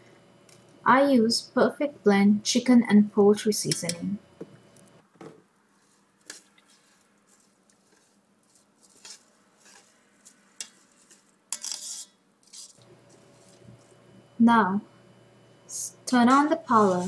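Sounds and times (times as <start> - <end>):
spoon scraping a pot: 5.8 - 13.9.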